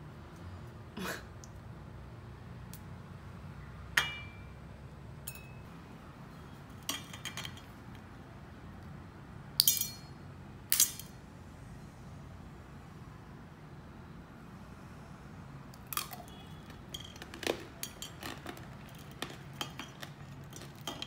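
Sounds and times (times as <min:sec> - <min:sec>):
candy clinking on ceramic plate: 0:16.0 - 0:21.0.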